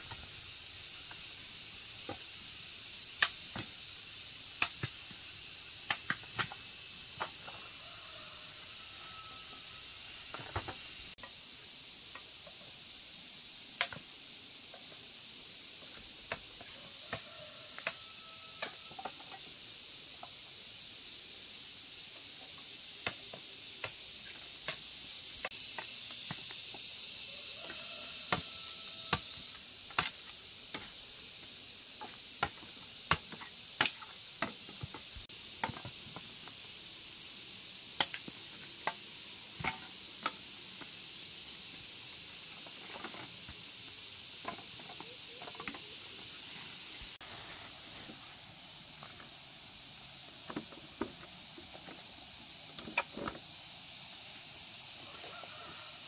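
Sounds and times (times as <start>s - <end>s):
steady high hiss: 0.0s - 56.0s
machete chopping cane: 3.2s - 3.8s, 4.6s - 5.2s, 5.8s - 6.6s, 28.3s - 31.0s, 32.0s - 35.0s.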